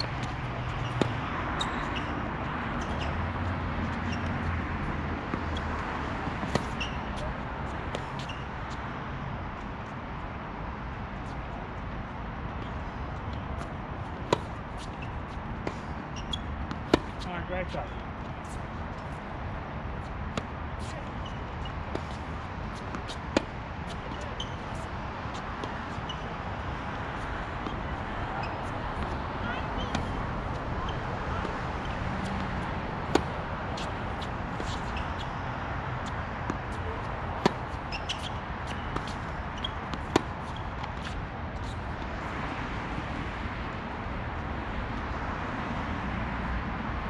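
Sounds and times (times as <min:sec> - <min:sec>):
tennis ball bouncing: 0:00.0 - 0:03.1, 0:03.9 - 0:08.8, 0:13.3 - 0:19.2, 0:20.0 - 0:42.2
tennis ball hit by racquet: 0:13.6 - 0:15.0, 0:15.6 - 0:17.2, 0:29.8 - 0:35.4, 0:36.0 - 0:41.2.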